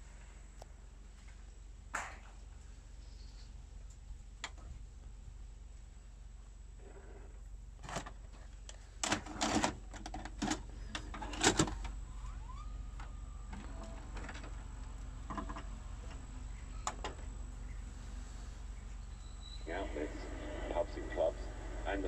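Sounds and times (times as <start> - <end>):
tape transport clicks and clunks: 7.8 - 17.9
motor whine: 11.8 - 22.0.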